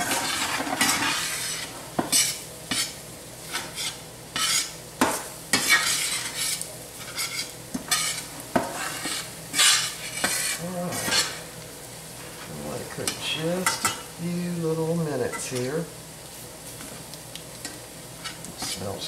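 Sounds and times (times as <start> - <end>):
metal spatula scraping skillet: 0.0 - 4.7, 5.5 - 11.4, 18.2 - 19.0
roux sizzling: 0.0 - 19.0.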